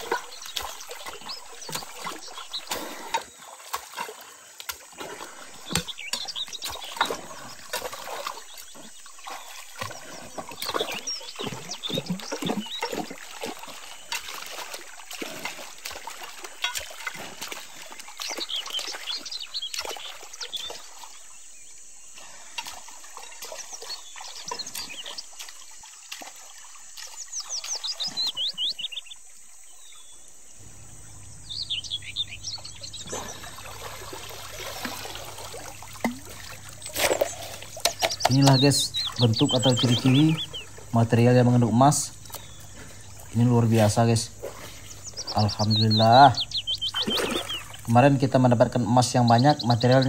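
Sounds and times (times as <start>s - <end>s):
bird chirping: 0.0s - 3.5s, 5.3s - 50.0s
stream water splashing and trickling: 0.0s - 50.0s
hands scooping gravel: 36.8s - 38.7s.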